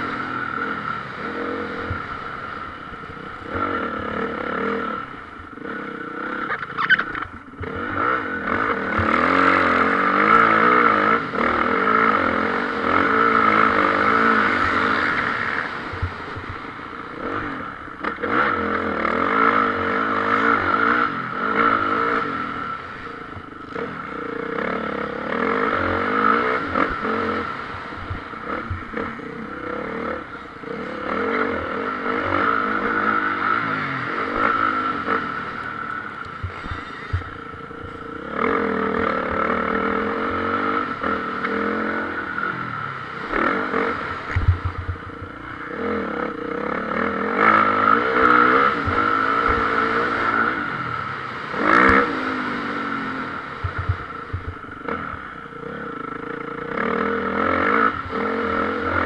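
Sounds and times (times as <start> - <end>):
motocross bike engines revving: 0.0 - 59.0.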